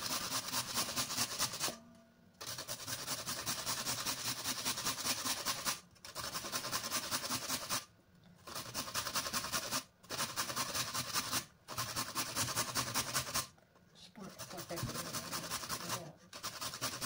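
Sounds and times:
carrot grating: 2.4s - 7.8s, 8.4s - 13.5s, 14.2s - 17.0s.

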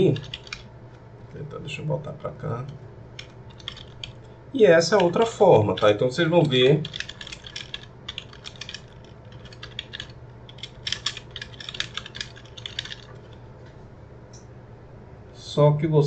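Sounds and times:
computer keyboard typing: 0.0s - 0.7s, 1.3s - 13.4s
faint low hum: 0.0s - 16.0s.

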